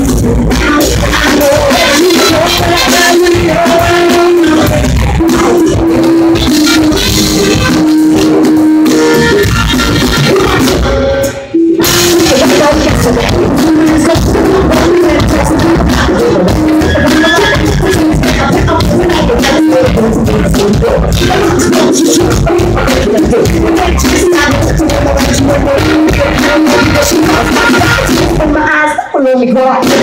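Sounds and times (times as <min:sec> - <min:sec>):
woman singing long notes: 0:00.0 - 0:06.0
live rock band playing: 0:00.0 - 0:30.0.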